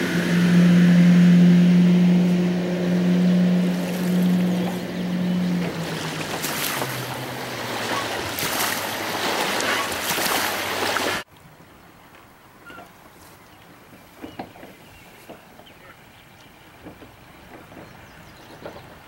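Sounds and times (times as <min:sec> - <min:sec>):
boat engine running: 0:00.0 - 0:11.2
rush of water: 0:00.0 - 0:19.0.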